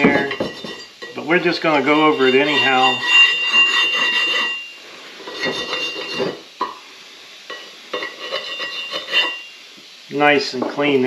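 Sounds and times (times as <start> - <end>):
wire brush scraping: 1.7 - 6.4, 8.0 - 9.4.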